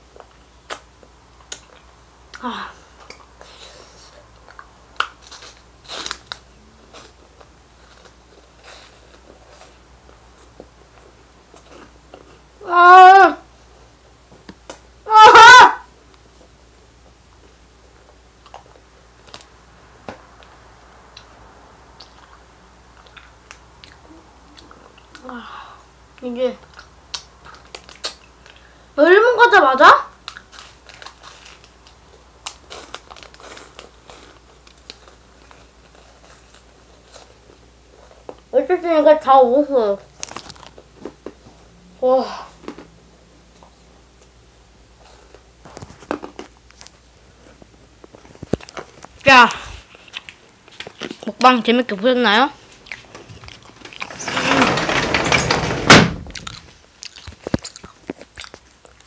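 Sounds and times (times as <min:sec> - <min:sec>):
snack crunching while chewed: 0:04.4 - 0:12.5, 0:18.0 - 0:19.5, 0:22.0 - 0:25.2, 0:26.6 - 0:28.7, 0:30.2 - 0:38.5, 0:40.2 - 0:41.4, 0:42.6 - 0:44.3, 0:45.0 - 0:51.4, 0:52.7 - 0:54.1, 0:56.4 - 0:59.0
plastic wrapper crinkling: 0:30.2 - 0:37.4, 0:40.2 - 0:40.8.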